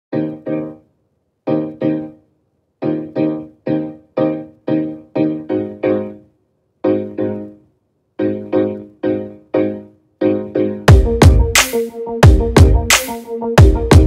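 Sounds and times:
keyboard chords: 0.1 - 14.0.

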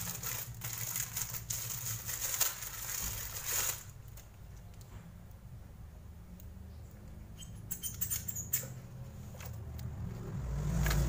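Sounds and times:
plastic clicks and squeaks: 7.3 - 9.6.

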